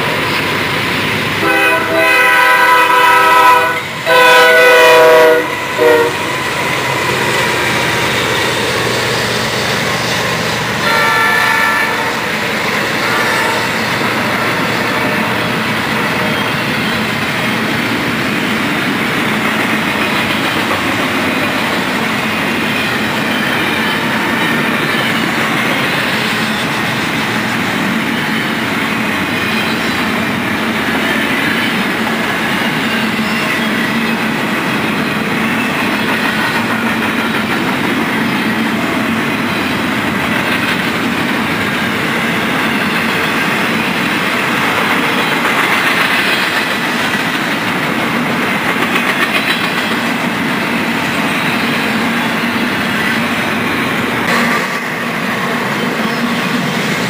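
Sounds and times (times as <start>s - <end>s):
train rumble and clickety-clack: 0.0s - 57.0s
locomotive horn blasts: 1.4s - 6.5s, 10.8s - 12.3s, 13.0s - 13.8s.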